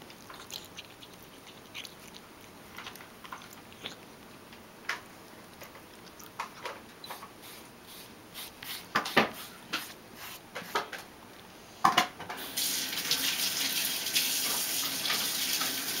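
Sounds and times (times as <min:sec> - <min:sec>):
water running from tap: 0:12.4 - 0:16.0.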